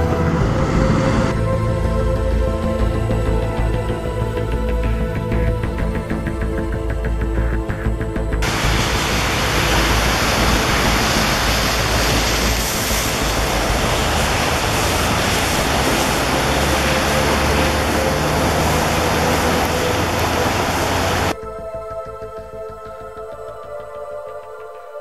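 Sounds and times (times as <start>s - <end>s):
floodwater rushing: 8.4s - 21.4s.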